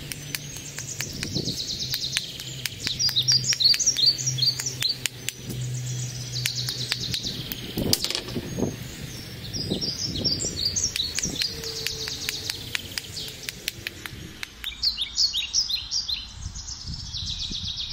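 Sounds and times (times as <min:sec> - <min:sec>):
small bird chirping: 0:00.0 - 0:17.9.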